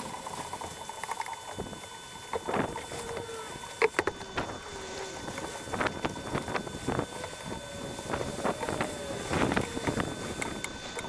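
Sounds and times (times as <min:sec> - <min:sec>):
brush scrubbing roof tiles: 0:02.2 - 0:11.0
wind noise on microphone: 0:02.4 - 0:11.0.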